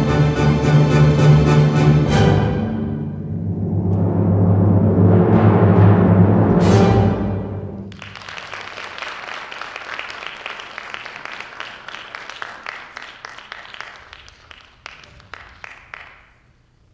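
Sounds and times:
audience applauding: 0:07.9 - 0:16.4.

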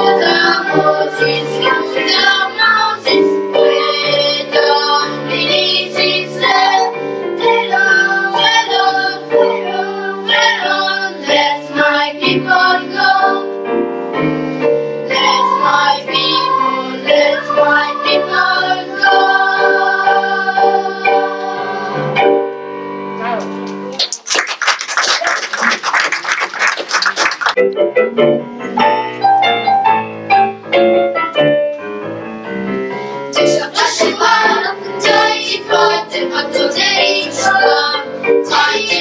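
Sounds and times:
children's choir singing: 0:00.0 - 0:13.6, 0:15.0 - 0:22.5, 0:33.3 - 0:39.0
piano accompaniment: 0:00.0 - 0:24.5, 0:25.8 - 0:39.0.

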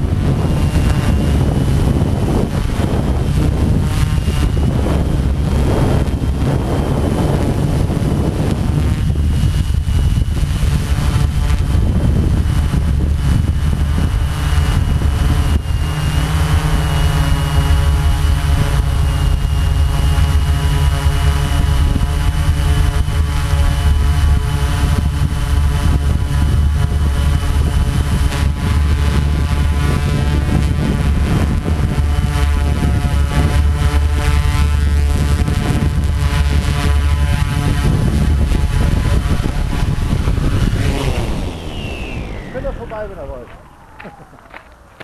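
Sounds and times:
drone motors whining: 0:00.0 - 0:45.0
wind buffeting microphone: 0:00.0 - 0:45.0
rumble of prop wash: 0:37.1 - 0:43.7.

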